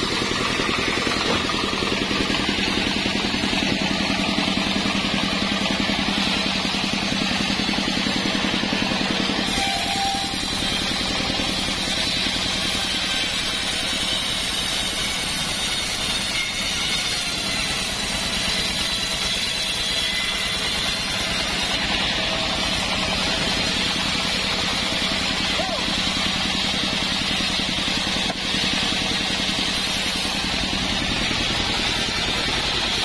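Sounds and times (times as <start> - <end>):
band saw cutting log: 0.0 - 33.0.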